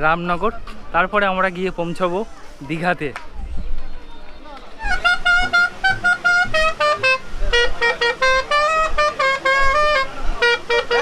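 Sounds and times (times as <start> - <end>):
reedy instrument melody: 4.7 - 11.0.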